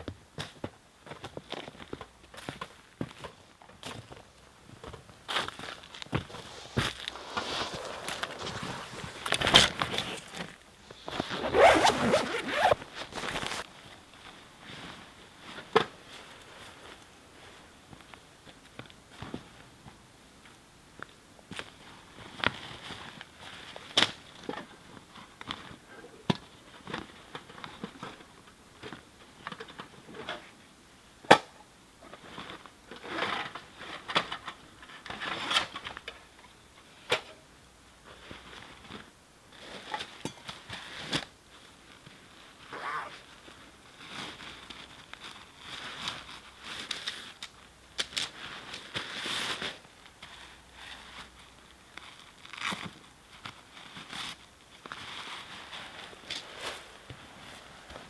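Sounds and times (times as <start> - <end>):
nylon sacks rustling: 5.3 - 17.6.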